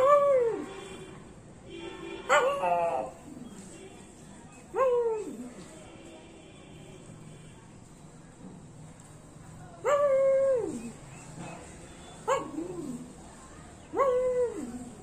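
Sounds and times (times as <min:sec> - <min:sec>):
dog howling barks: 0:02.3 - 0:03.2, 0:09.8 - 0:11.0, 0:12.3 - 0:13.0, 0:13.9 - 0:15.0.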